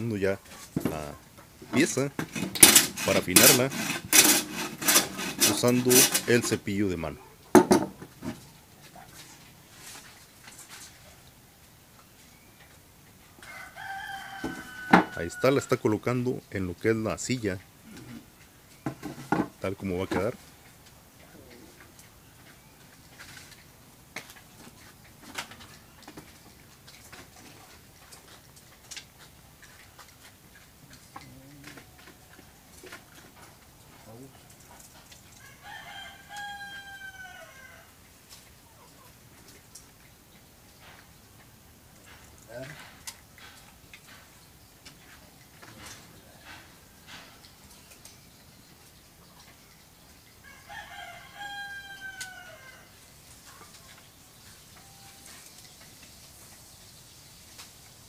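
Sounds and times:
rooster crowing: 13.4 - 15.8, 35.4 - 38.0, 50.4 - 53.0.

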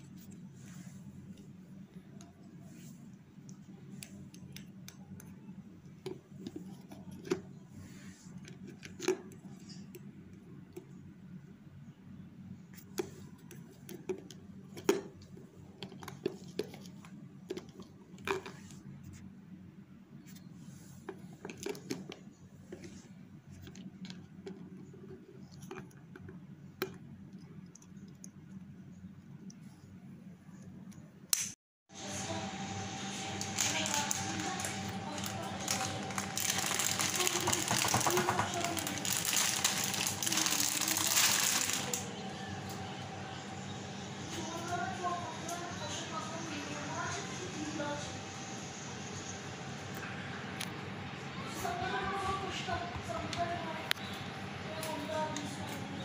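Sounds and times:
steady low hum: 31.9 - 56.0.

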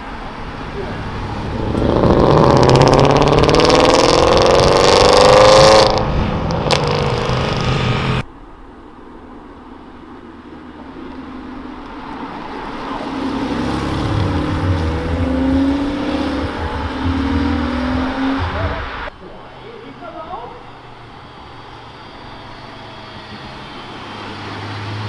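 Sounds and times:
car engine approaching: 0.0 - 8.3, 9.1 - 25.0
car accelerating hard: 0.6 - 8.2, 12.2 - 19.1.

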